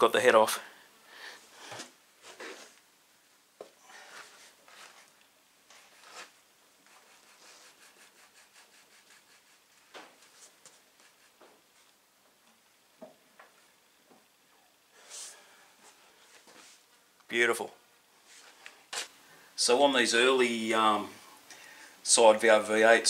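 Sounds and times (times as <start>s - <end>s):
rubbing and scraping: 3.9s - 12.0s.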